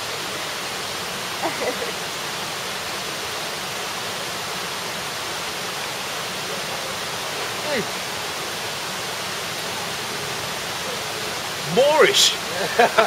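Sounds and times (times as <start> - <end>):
rushing flowing water: 0.0 - 13.0.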